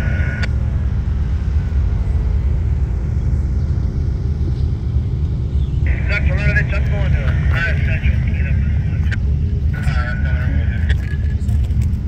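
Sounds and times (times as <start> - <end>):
diesel locomotive engines rumbling: 0.0 - 12.0.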